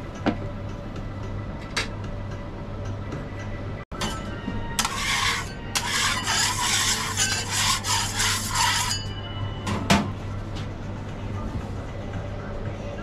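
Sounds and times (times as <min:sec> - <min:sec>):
scraper rasping on steel griddle: 0:04.8 - 0:09.1.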